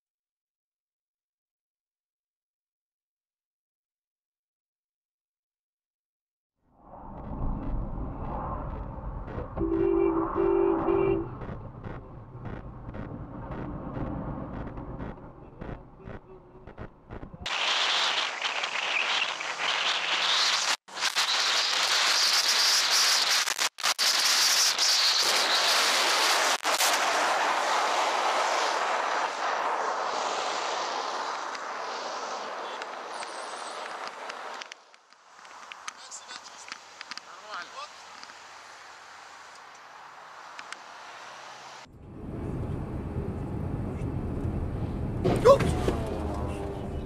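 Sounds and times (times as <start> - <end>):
road and engine noise: 6.6 - 22.2, 23.6 - 47.0
car horn blasts: 9.6 - 11.4.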